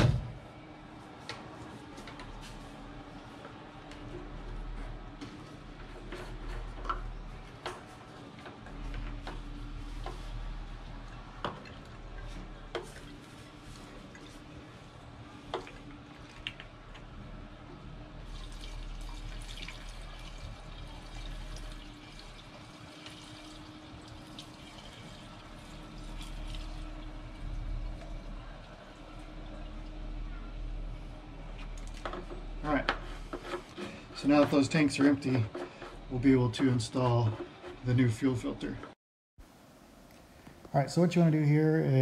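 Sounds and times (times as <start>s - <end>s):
fuel trickling into a plastic can: 18.2s - 29.4s.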